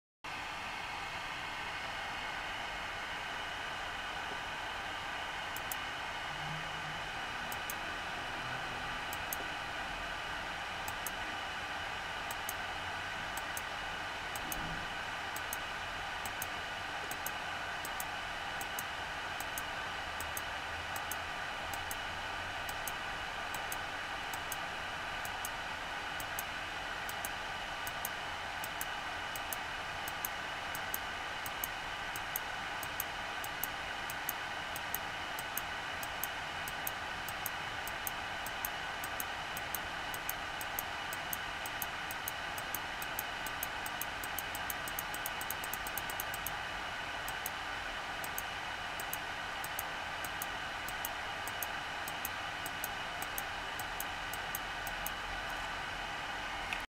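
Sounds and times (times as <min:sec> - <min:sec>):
machine hum: 0:00.3 - 0:56.9
fast regular ticking: 0:17.1 - 0:22.0, 0:22.6 - 0:24.6, 0:27.1 - 0:46.6, 0:48.2 - 0:55.2.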